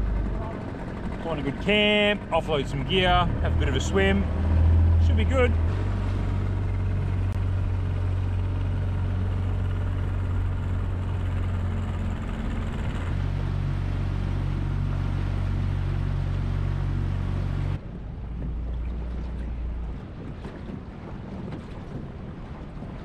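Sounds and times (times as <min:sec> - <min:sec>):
outboard motor running: 0:00.0 - 0:23.0
water: 0:00.0 - 0:23.0
wind noise: 0:17.7 - 0:23.0.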